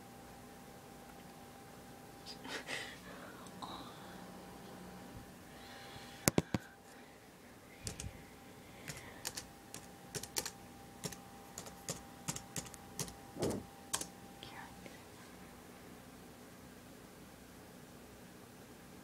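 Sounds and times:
laptop keyboard typing: 7.8s - 8.1s, 8.8s - 14.1s.

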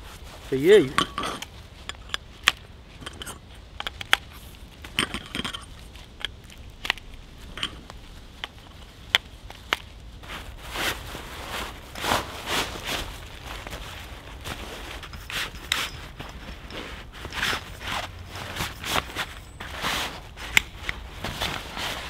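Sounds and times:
soft rustle: 0.0s - 22.0s
camp bed frame clicking and clacking: 0.7s - 9.9s, 14.6s - 22.0s.

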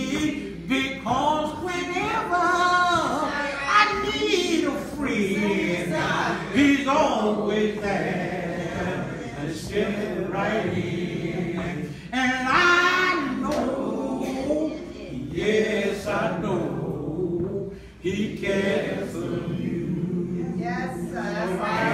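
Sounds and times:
man singing unaccompanied: 9.5s - 13.7s.

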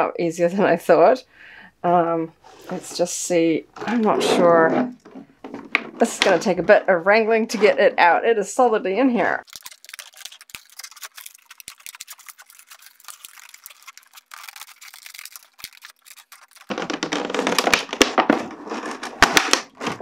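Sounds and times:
plastic packaging crinkling: 9.4s - 20.0s
plastic popping: 13.3s - 20.0s.

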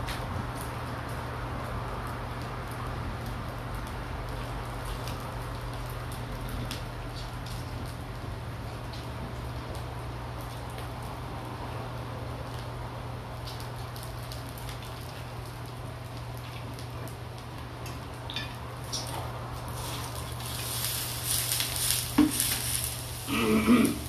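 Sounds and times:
meat sizzling on a grill pan: 19.7s - 24.0s.

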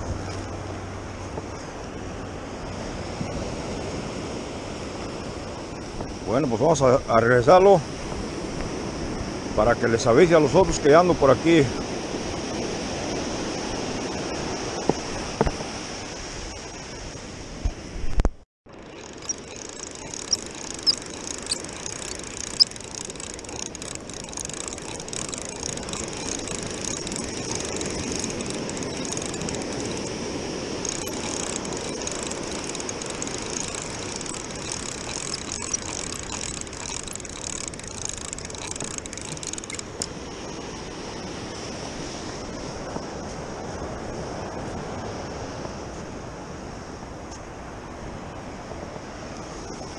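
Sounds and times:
surf washing: 0.0s - 18.0s, 18.8s - 49.9s
fishing reel whirring: 18.7s - 40.4s.

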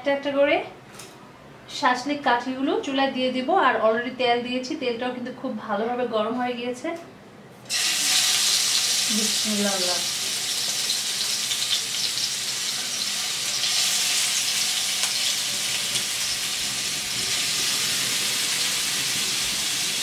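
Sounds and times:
food sizzling in hot oil: 7.7s - 20.0s.

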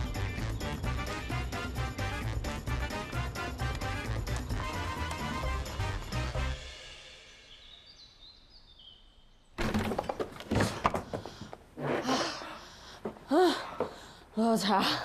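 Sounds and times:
comedic background music: 0.0s - 7.0s
thumps and knocks: 9.6s - 11.6s.

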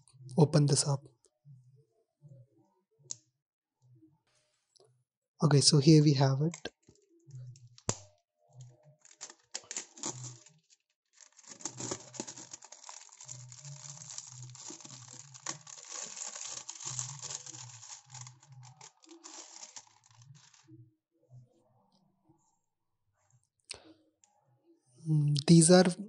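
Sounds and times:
plastic film crinkling and tearing: 9.0s - 20.7s.

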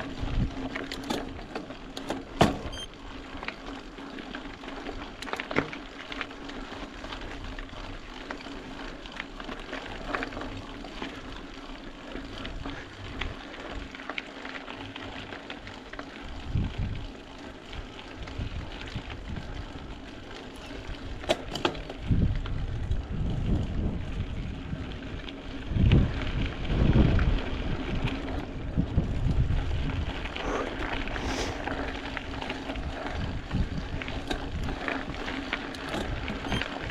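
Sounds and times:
bike clicks and rattles: 0.0s - 36.9s
bike tyre and drivetrain noise: 0.0s - 36.9s
wind gusts on microphone: 22.0s - 31.6s, 32.8s - 35.2s.

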